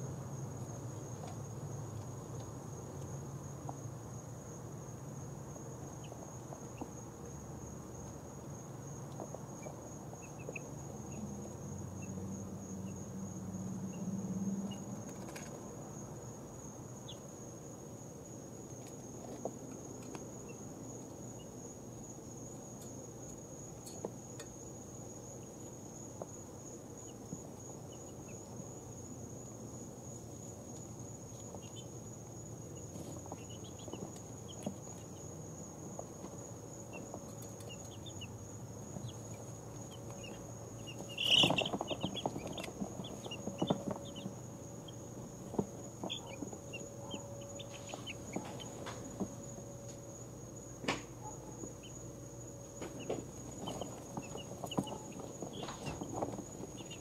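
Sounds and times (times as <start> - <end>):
chicks scratching in bedding: 7.9 - 13.1, 14.6 - 15.6, 18.2 - 50.3, 51.4 - 57.0
chicks peeping: 9.1 - 12.2, 30.2 - 31.9, 32.6 - 35.3, 35.9 - 49.3, 52.8 - 57.0.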